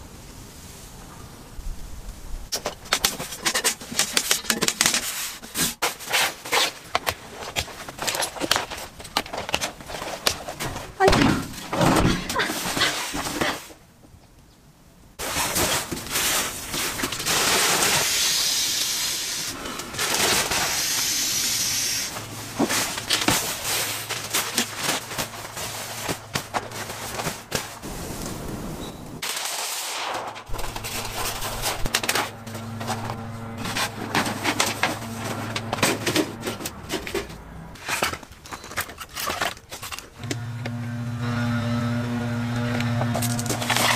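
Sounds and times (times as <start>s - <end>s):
bedding rustling: 15.2s - 18.2s, 22.1s - 29.3s, 30.5s - 39.9s.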